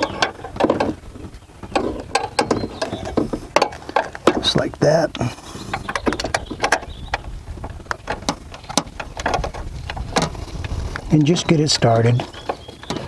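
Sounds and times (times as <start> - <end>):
bolts clicking and knocking: 0.0 - 13.0.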